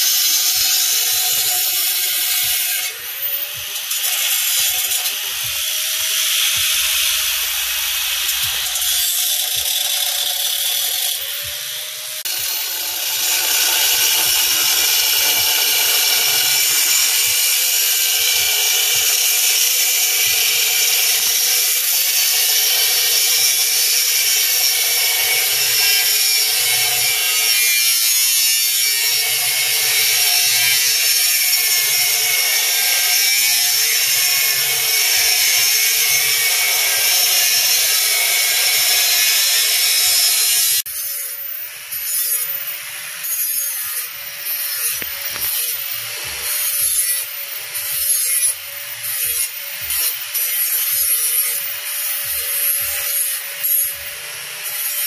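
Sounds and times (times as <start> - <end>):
angle grinder cutting steel: 0.0 - 55.0.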